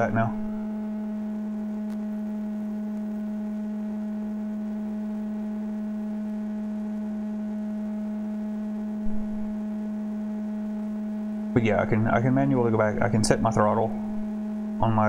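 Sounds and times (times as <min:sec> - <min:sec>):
faint higher tone: 0:00.0 - 0:05.6, 0:08.8 - 0:10.0, 0:11.6 - 0:15.0
low electrical hum: 0:00.0 - 0:15.0.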